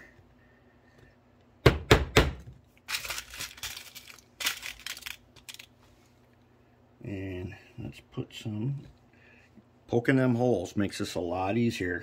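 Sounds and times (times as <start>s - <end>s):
small nails rattling in plastic box: 2.9s - 5.7s.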